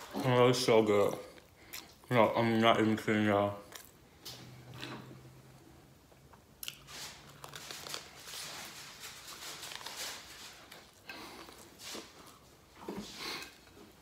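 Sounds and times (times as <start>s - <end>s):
crunchy chewing: 3.6s - 4.0s, 6.6s - 8.3s.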